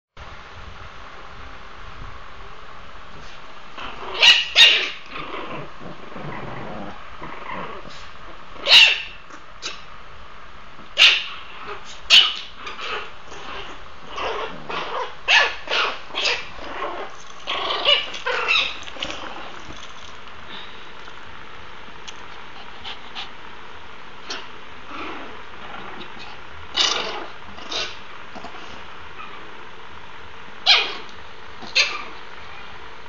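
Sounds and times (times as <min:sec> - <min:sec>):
puppies growling: 0:03.7 - 0:08.7, 0:11.3 - 0:21.2, 0:24.2 - 0:29.5
puppies yipping and barking: 0:04.2 - 0:05.1, 0:08.6 - 0:09.8, 0:14.2 - 0:20.1.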